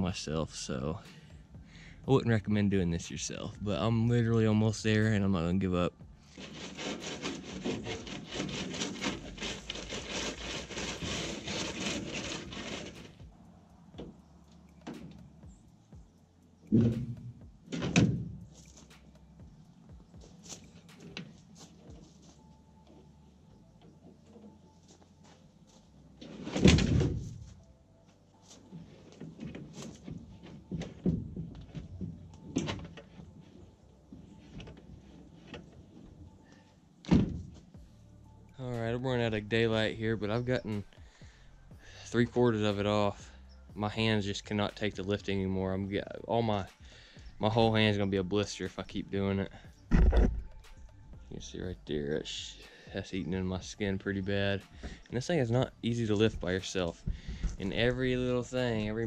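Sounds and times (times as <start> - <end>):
wood scraping: 6.2 - 15.3, 28.4 - 37.8, 43.8 - 59.0
knocks and thuds on truck bed: 16.7 - 18.4, 26.5 - 27.4, 29.4 - 33.0, 37.1 - 37.6.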